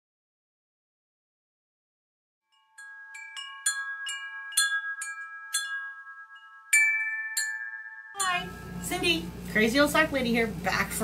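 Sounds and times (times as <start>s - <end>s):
light metallic chime strikes: 2.8s - 9.7s.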